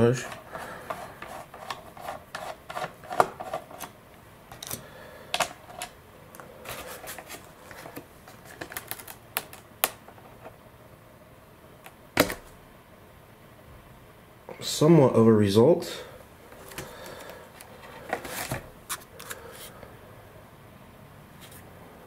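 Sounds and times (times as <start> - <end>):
paper rustling: 6.6 - 9.7.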